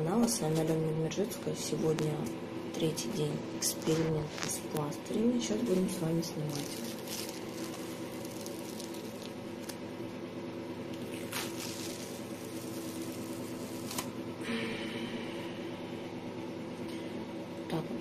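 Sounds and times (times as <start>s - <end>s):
steady low hum: 0.0s - 18.0s
patch peeled off skin: 6.6s - 9.8s, 10.9s - 14.1s.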